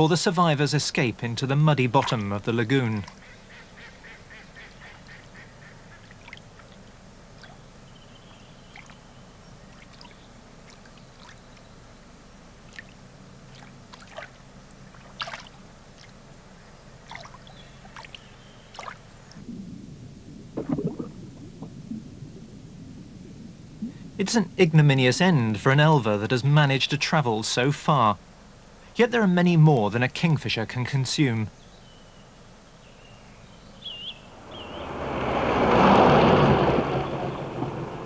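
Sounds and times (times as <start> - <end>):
steady low hum: 0.0 - 38.0
harsh water-bird calls: 2.0 - 11.9, 33.7 - 38.0.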